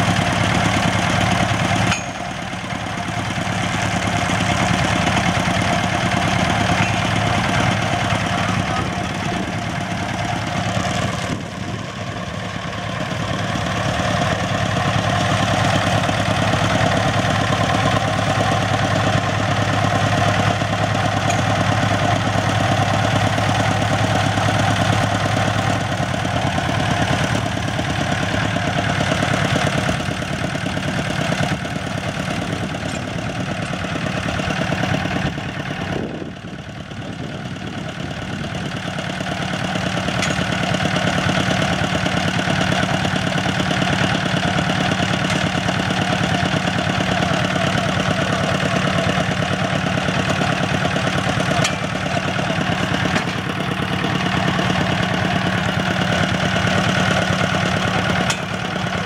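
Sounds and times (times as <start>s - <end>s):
drilling rig engine running: 0.0s - 59.0s.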